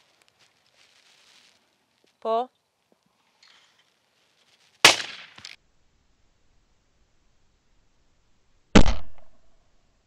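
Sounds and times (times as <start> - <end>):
faint crack: 2.9 - 5.6
shotgun shot: 4.8 - 5.6, 8.8 - 9.4.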